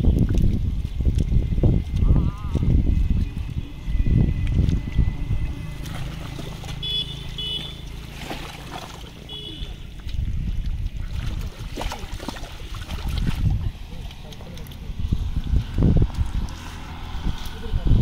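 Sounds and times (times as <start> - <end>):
low steady rumble: 0.0 - 11.6
sloshing in muddy water: 0.0 - 18.0.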